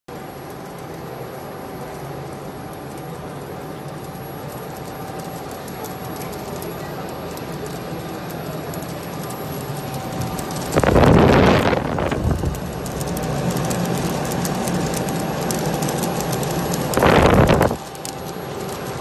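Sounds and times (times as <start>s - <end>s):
faint steady whine: 0.1s - 19.0s
air conditioner blower whoosh: 9.2s - 19.0s.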